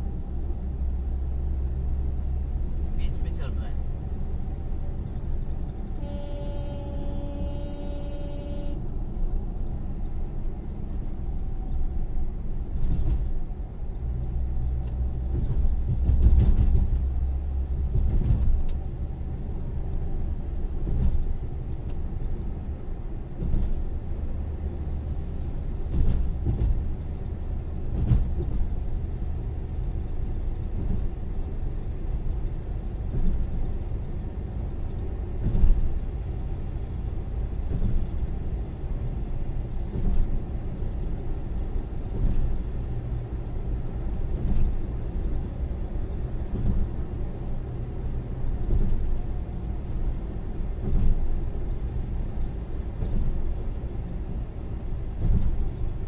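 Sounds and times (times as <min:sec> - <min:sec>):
car road and engine rumble: 0:00.0 - 0:56.0
vehicle horn blast: 0:06.0 - 0:08.8.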